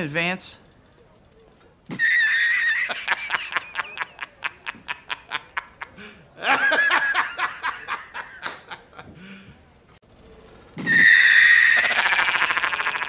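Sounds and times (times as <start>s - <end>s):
man cackling laugh: 1.9s - 9.2s, 10.8s - 13.0s.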